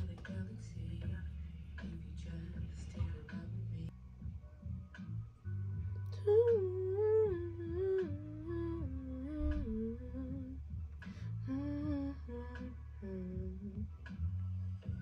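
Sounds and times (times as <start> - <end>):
low bass backing: 0.0 - 15.0
person humming a melody: 6.2 - 10.6, 11.4 - 13.9.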